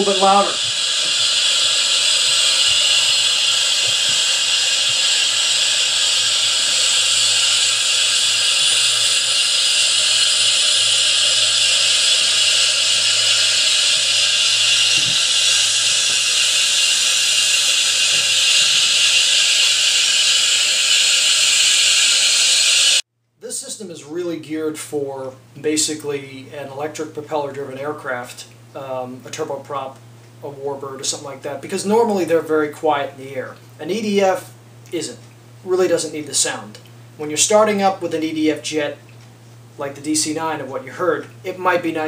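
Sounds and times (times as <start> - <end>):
jet engine turbine hiss: 0.0 - 23.0.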